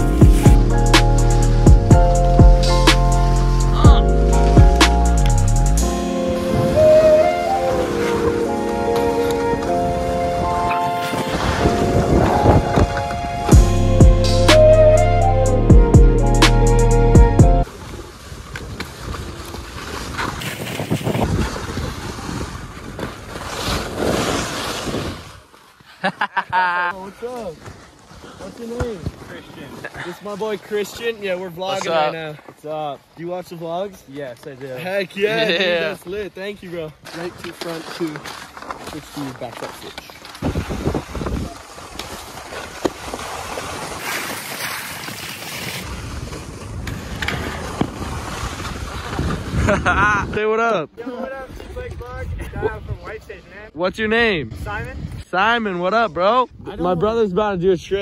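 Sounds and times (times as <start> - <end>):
skis scraping over snow: 6.4 - 13.6, 17.6 - 26.3, 27.0 - 50.2
wind rushing over microphone: 9.4 - 13.7, 17.7 - 25.4, 40.4 - 41.7, 45.8 - 50.5, 51.4 - 53.5, 54.4 - 55.3.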